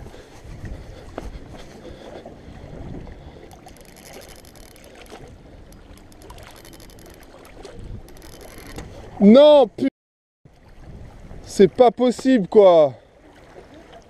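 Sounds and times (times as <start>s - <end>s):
wind on microphone: 0.0s - 9.2s, 10.6s - 11.5s
water sloshing against rocks: 0.4s - 9.2s
fishing reel clicking and buzzing: 3.4s - 9.0s.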